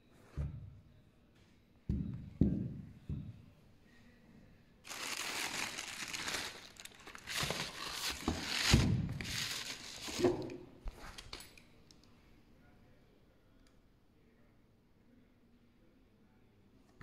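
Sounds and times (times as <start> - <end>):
tissue paper crinkling: 4.8 - 10.4.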